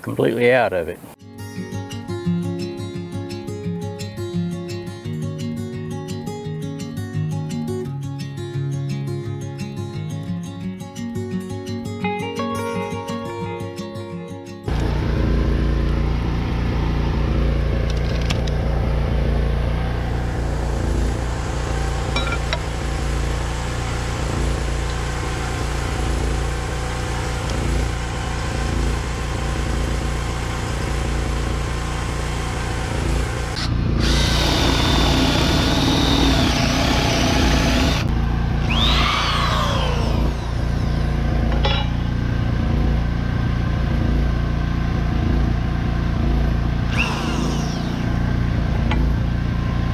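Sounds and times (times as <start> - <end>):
short rising and falling whine: 12.8 - 42.6, 46.8 - 49.9
electric drill running: 14.7 - 18.7, 19.8 - 41.4, 46.8 - 48.9
generator engine running: 14.7 - 49.9.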